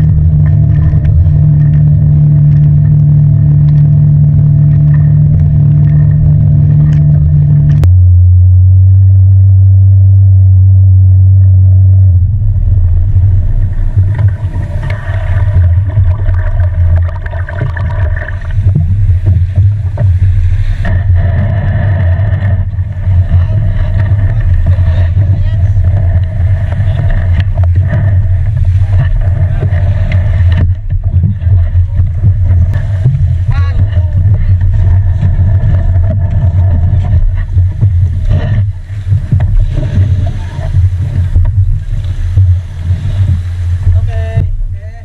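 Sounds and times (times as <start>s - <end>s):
outboard motor running: 0.0s - 45.0s.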